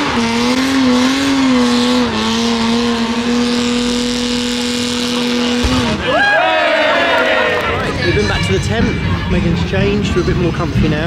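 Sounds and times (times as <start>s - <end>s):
race car engine at high revs: 0.0s - 6.0s.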